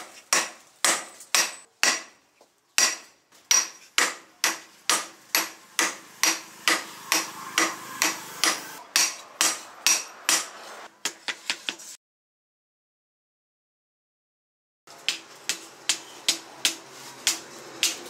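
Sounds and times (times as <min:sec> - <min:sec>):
hammer striking hot steel on anvil: 0:00.0 - 0:02.1, 0:02.8 - 0:11.2.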